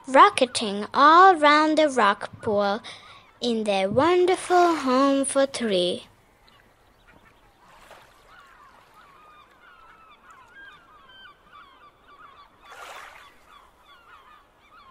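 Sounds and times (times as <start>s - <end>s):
chorus of bird calls: 6.3s - 14.9s.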